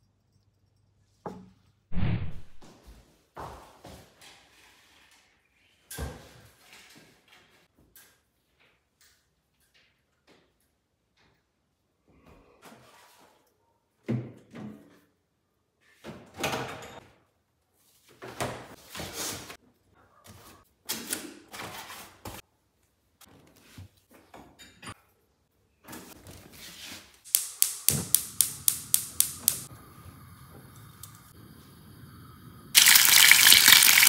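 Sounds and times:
gas hob igniter clicking rapidly: 0:27.3 - 0:29.7.

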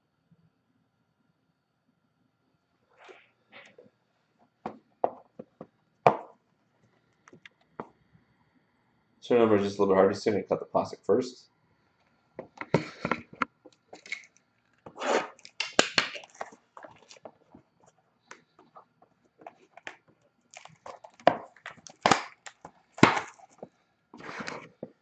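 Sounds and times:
plastic wrap crinkling: 0:14.0 - 0:17.6.

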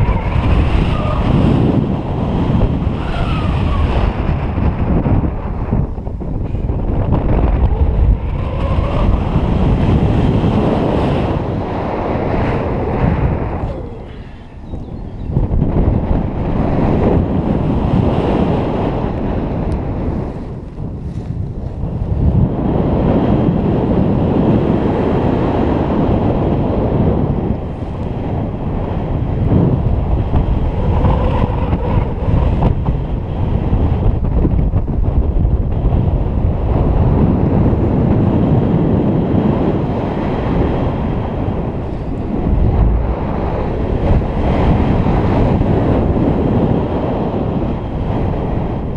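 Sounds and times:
wind buffeting microphone: 0:00.0 - 0:48.9
faint rustles of gear: 0:21.0 - 0:21.5.

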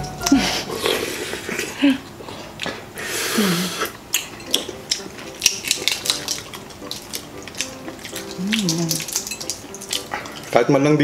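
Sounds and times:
wet chewing: 0:03.7 - 0:10.7
eggshell being peeled: 0:04.2 - 0:10.5
person humming: 0:08.4 - 0:09.1.

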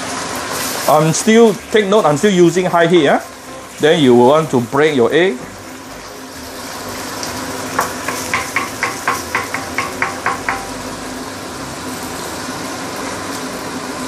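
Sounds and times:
egg sizzling in wok: 0:00.0 - 0:14.0
wooden spatula knocking on wok: 0:07.7 - 0:10.8.

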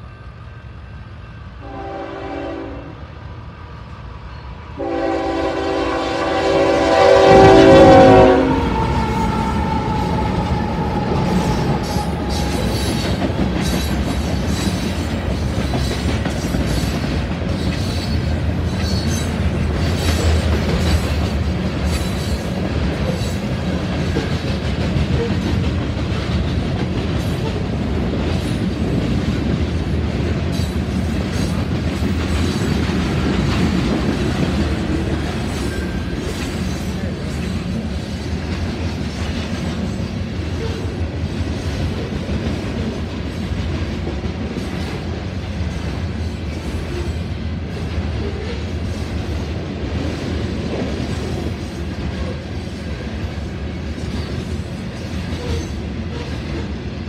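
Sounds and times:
freight train rumble: 0:00.0 - 0:57.0
locomotive horn: 0:01.6 - 0:03.0, 0:04.8 - 0:10.4
wheels clacking on rails: 0:05.6 - 0:57.0.

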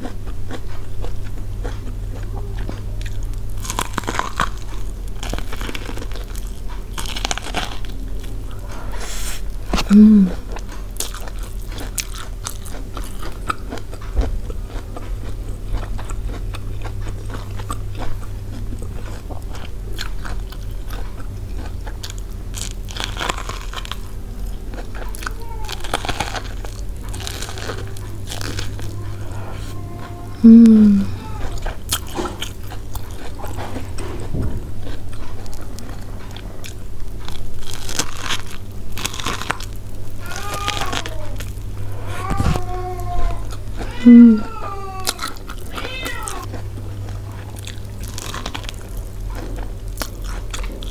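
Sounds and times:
chewing corn on the cob: 0:00.0 - 0:50.9
loud hum: 0:09.7 - 0:10.4, 0:27.7 - 0:31.4.

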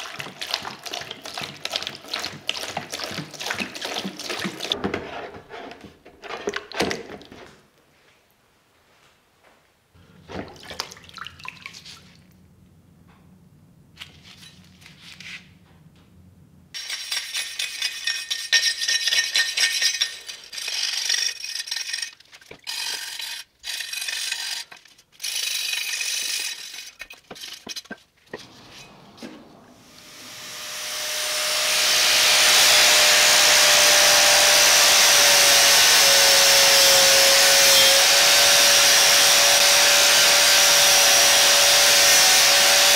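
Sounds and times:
faint handling sounds: 0:13.9 - 0:16.2
scrubbing on steel cleaver: 0:16.8 - 0:24.9
angle grinder whining: 0:28.3 - 0:42.9.

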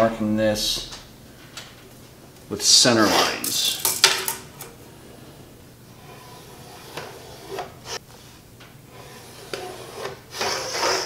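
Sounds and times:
short scrapes on wood: 0:06.0 - 0:08.0, 0:08.9 - 0:11.0.

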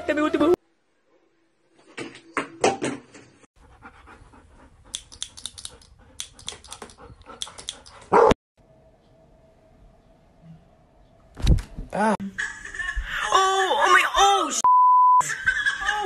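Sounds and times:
dog panting: 0:03.6 - 0:08.3
dog barking: 0:08.1 - 0:08.4.

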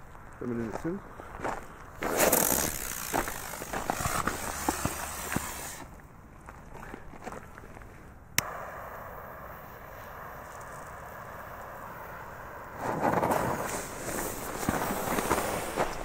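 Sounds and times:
footsteps on stony ground: 0:00.0 - 0:08.3
lighter gas hissing: 0:02.1 - 0:05.9, 0:08.4 - 0:16.0.

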